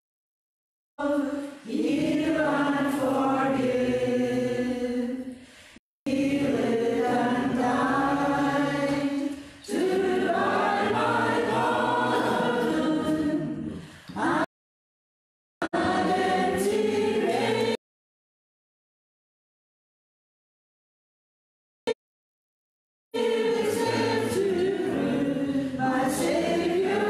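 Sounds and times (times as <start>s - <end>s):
group singing a hymn: 1.0s - 5.4s, 6.1s - 14.5s, 15.6s - 17.8s, 23.2s - 27.0s.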